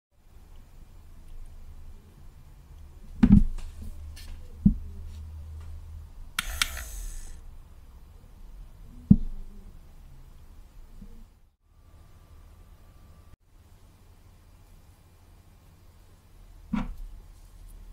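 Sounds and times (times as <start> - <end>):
small motor whirring: 6.4 - 7.4.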